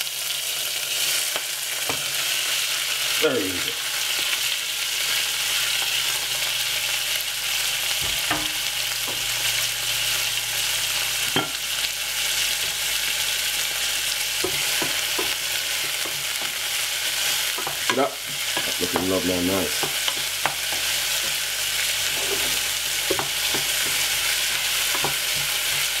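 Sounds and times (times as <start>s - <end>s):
vegetables sizzling in oil: 0.0s - 26.0s
wooden spoon stirring in a pan: 14.0s - 26.0s.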